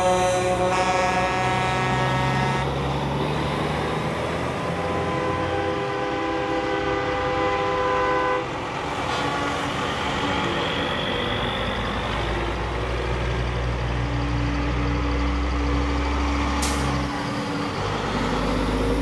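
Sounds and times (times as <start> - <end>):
truck air horn blasts: 0.0 - 2.8, 4.7 - 8.5
diesel trucks rumbling past: 0.0 - 19.0.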